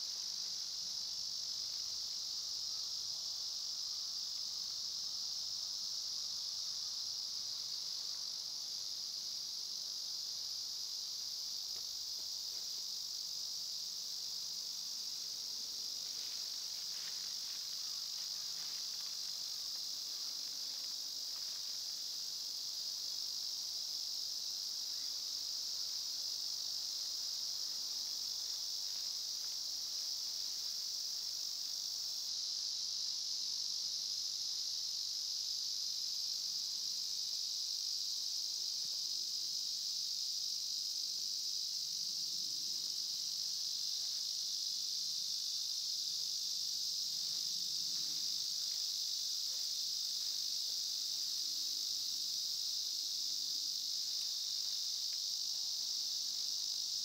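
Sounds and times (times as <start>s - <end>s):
insects trilling: 0.0s - 57.0s.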